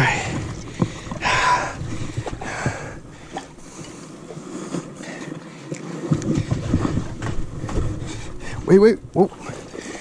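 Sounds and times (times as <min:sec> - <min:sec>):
wind buffeting microphone: 0:00.0 - 0:03.7, 0:06.1 - 0:10.0.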